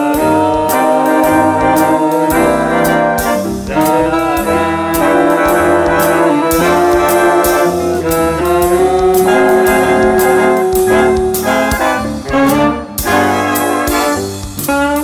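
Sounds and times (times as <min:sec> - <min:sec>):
swing big band playing: 0:00.0 - 0:15.0.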